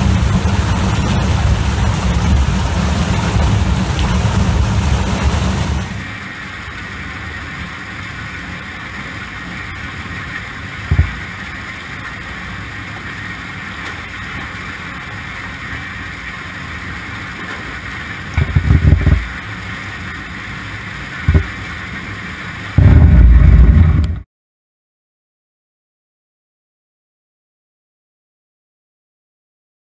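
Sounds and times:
heavy low thumps: 0.0 - 6.0, 10.9 - 11.2, 22.8 - 24.2.

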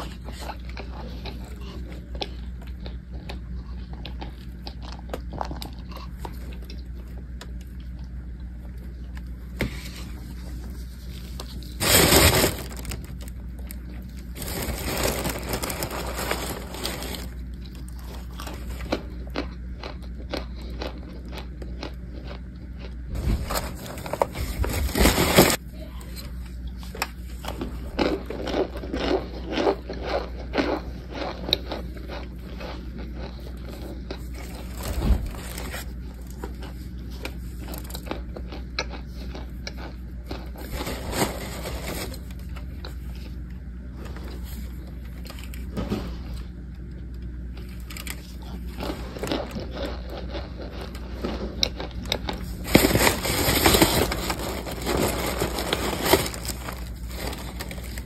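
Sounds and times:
crunching of cornstarch being chewed: 0.0 - 58.0
steady low hum: 0.0 - 58.0
aluminium foil crinkling: 10.0 - 19.1, 23.1 - 25.6, 34.1 - 38.5, 39.8 - 43.3, 47.6 - 58.0.

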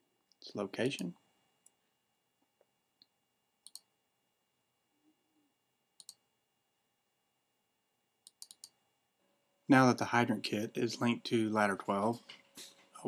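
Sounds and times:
faint computer mouse clicks: 3.0 - 3.9, 6.0 - 6.2, 8.2 - 8.8.

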